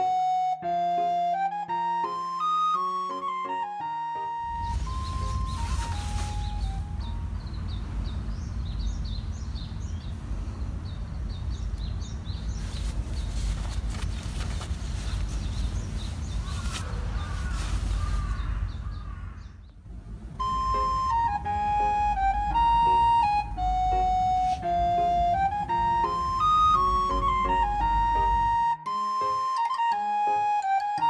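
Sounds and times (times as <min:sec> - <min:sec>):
nylon rustling: 0:04.5 - 0:07.1, 0:12.5 - 0:18.9
steady low rumble: 0:04.5 - 0:28.4
birds chirping: 0:04.5 - 0:28.6.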